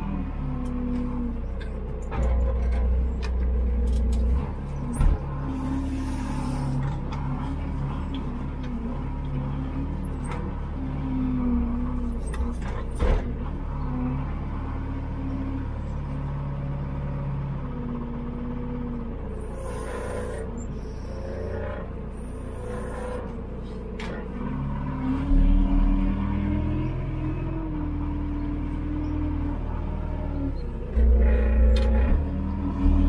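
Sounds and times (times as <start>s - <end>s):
diesel engine running: 0.0s - 33.0s.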